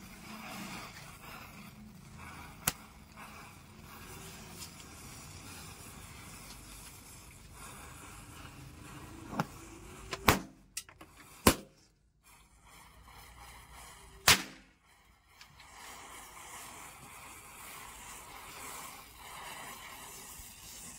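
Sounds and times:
firecrackers cracking and banging: 14.2s - 14.7s.

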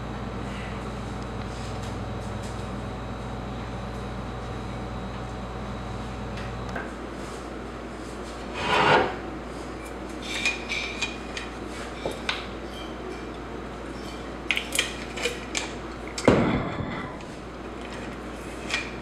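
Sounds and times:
thud: 16.3s - 16.8s.

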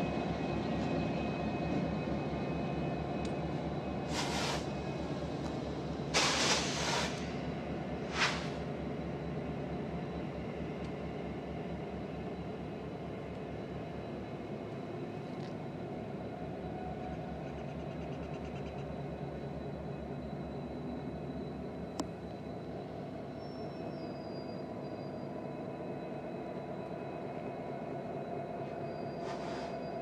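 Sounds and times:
diesel locomotives rumbling: 0.0s - 30.0s
sharp air hisses: 4.1s - 4.7s, 6.1s - 7.4s, 8.1s - 8.7s, 29.2s - 29.8s.

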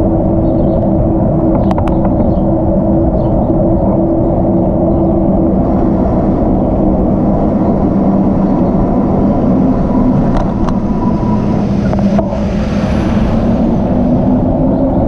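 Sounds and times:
road traffic: 0.0s - 15.0s
wind rumble on microphone: 0.0s - 15.0s.

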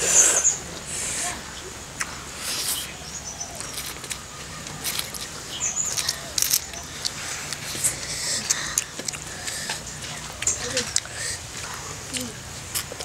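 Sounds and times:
noodles slurped and chewed: 3.6s - 13.0s.

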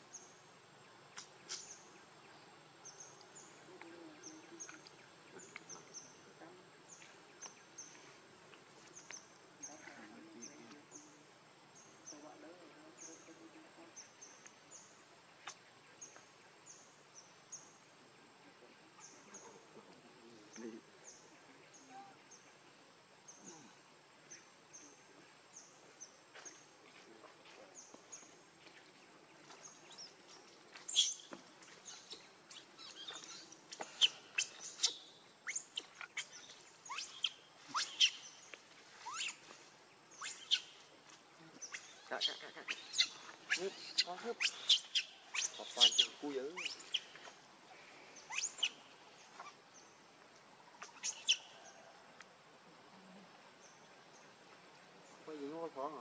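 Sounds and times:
bird chirping: 27.4s - 50.0s, 50.8s - 51.9s
sharp high-pitched squeaks: 30.9s - 38.3s, 39.0s - 39.4s, 40.2s - 40.7s, 41.7s - 47.1s, 48.3s - 48.8s, 50.9s - 51.4s.

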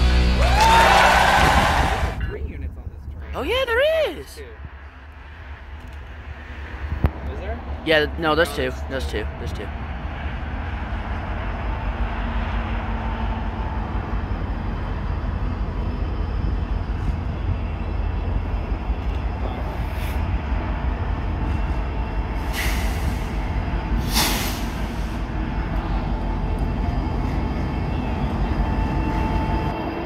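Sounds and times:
deep locomotive engine rumble: 0.0s - 30.0s.

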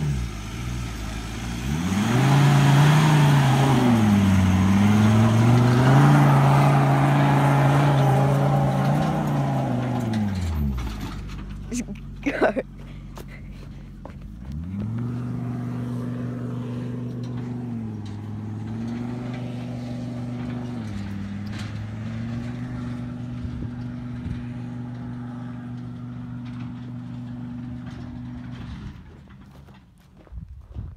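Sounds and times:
truck engine revving under load: 0.0s - 29.8s.

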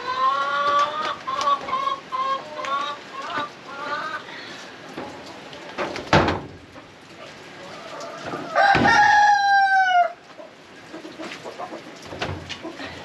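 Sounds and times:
rooster crowing: 8.4s - 10.2s.

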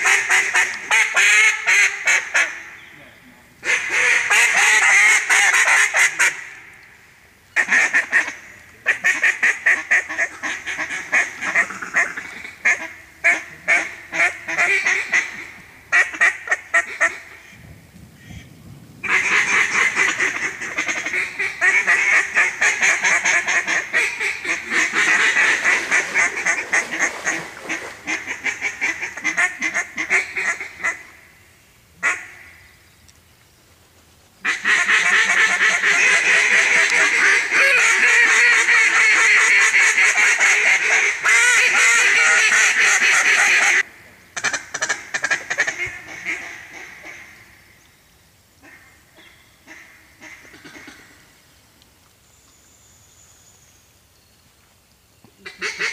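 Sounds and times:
duck calls quacking: 0.0s - 2.8s, 3.6s - 6.7s, 7.6s - 17.6s, 19.0s - 31.1s, 32.0s - 32.5s, 34.4s - 47.4s, 48.6s - 51.2s, 55.4s - 55.9s.

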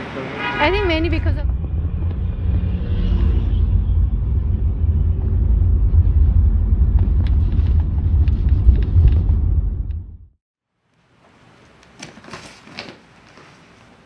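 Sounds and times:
road and engine rumble: 0.0s - 10.4s.

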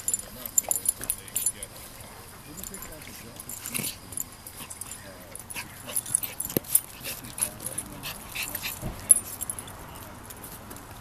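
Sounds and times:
dogs vocalising: 1.4s - 9.7s.

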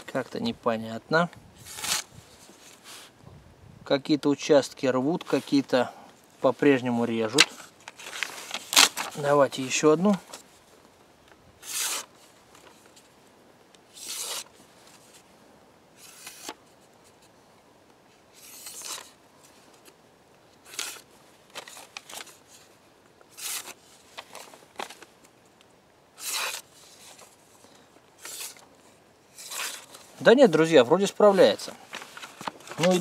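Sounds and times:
blade slicing paper: 1.6s - 2.1s, 11.6s - 12.1s, 14.0s - 14.5s, 20.7s - 21.0s, 23.3s - 23.8s, 26.2s - 26.7s, 28.2s - 28.6s, 29.4s - 30.0s.

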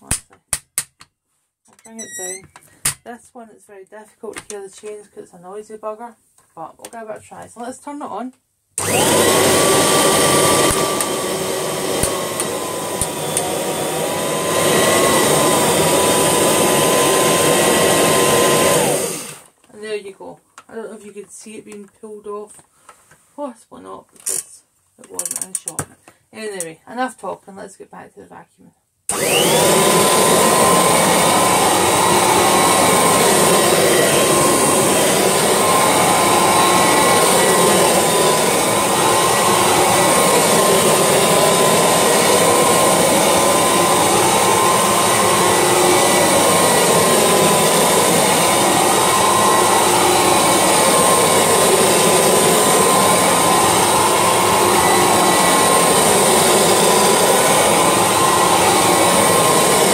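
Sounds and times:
vacuum cleaner running: 8.8s - 19.5s, 29.1s - 59.9s.

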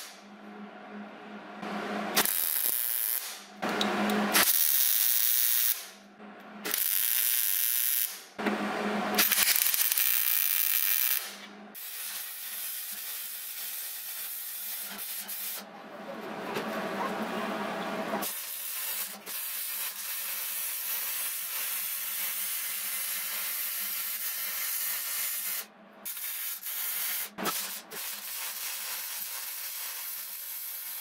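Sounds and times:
welding arc crackling and hissing: 2.2s - 3.4s, 4.3s - 5.9s, 6.7s - 8.2s, 9.2s - 15.6s, 18.2s - 31.0s.

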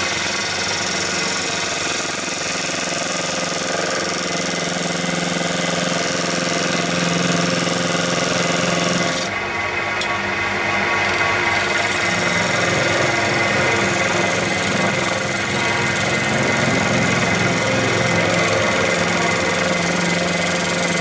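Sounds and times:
wood lathe humming: 0.0s - 21.0s.

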